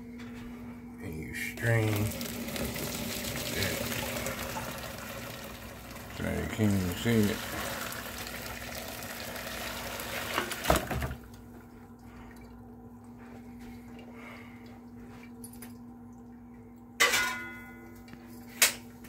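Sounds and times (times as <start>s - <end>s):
liquid pouring into sink: 1.6s - 11.3s
metal clang: 17.0s - 17.8s.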